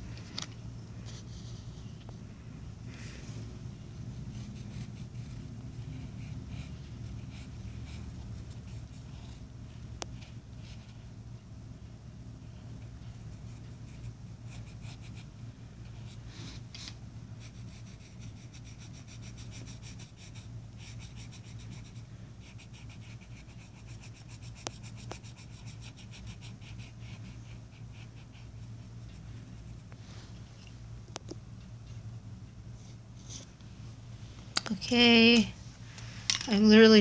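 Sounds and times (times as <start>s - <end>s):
steady low hum: 0.0s - 37.0s
pencil scratching on paper: 4.2s - 9.4s, 12.8s - 15.3s, 15.9s - 29.7s.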